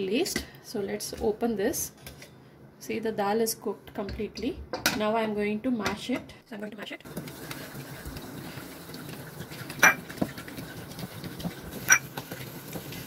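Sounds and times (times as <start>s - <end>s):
wet squishing of mashed lentils: 9.2s - 13.0s.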